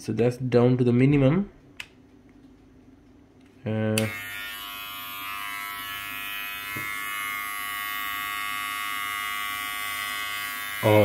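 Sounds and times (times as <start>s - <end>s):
hair trimmer buzzing: 4.0s - 11.0s.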